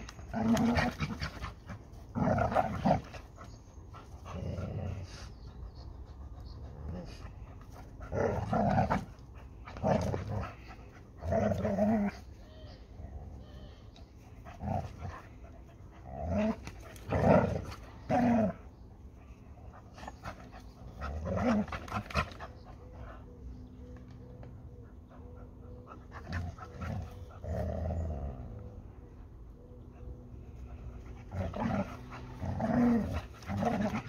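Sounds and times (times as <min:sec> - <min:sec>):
dog growling: 0:00.2 - 0:03.3, 0:08.0 - 0:12.4, 0:16.0 - 0:18.7, 0:20.9 - 0:22.4, 0:26.3 - 0:28.7, 0:31.1 - 0:34.0.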